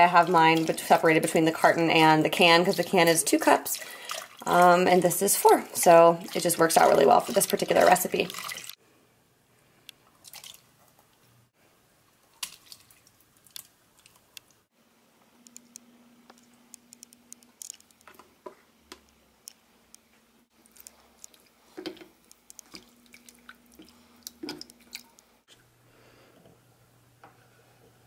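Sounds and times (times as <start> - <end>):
faint steady hum: 8.8 - 28.0.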